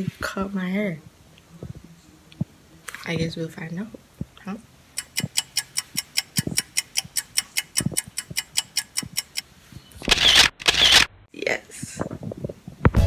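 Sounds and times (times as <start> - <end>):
clock ticking: 4.9 - 9.5.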